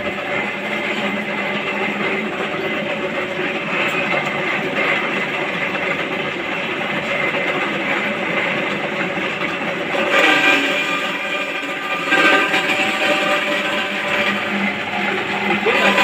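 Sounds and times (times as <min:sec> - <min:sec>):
metal scraping screech: 0:09.9 - 0:16.0.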